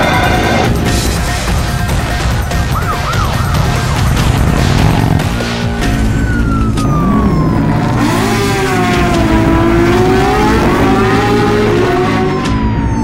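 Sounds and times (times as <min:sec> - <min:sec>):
cartoon motorcycle engine whine: 0:02.6 - 0:13.0.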